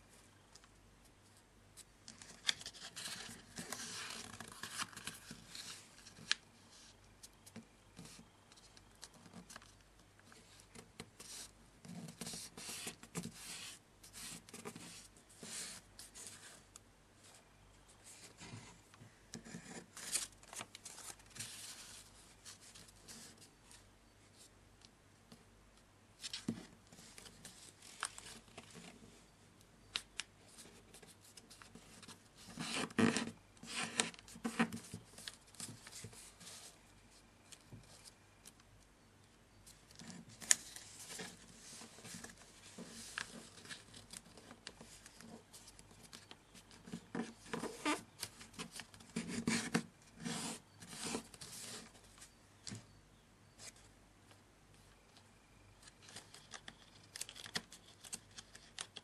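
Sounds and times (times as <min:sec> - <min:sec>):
paper crinkling and rustling: 0:02.0 - 0:06.4, 0:39.6 - 0:52.4, 0:55.8 - 0:59.0.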